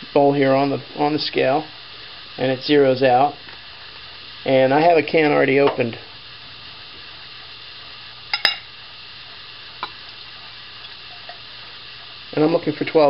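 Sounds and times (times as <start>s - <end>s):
soft steady hiss: 0.0s - 13.0s.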